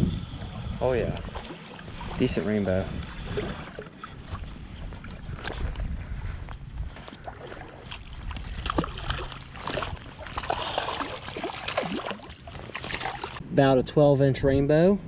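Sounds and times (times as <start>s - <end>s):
fish thrashing water splashing: 7.2s - 13.4s.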